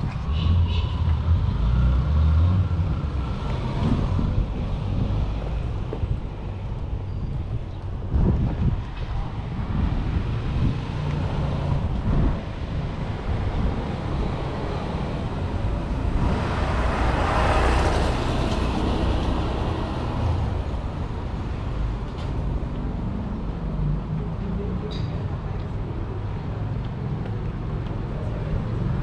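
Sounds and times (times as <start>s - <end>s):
street traffic rumble: 0.0s - 29.0s
vehicle passing close: 13.3s - 21.5s.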